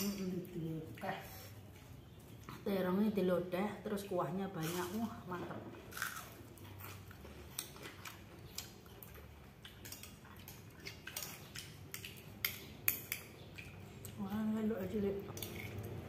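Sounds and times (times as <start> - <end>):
metal spoon clinking on bowl: 0.0 - 0.4, 11.2 - 13.3.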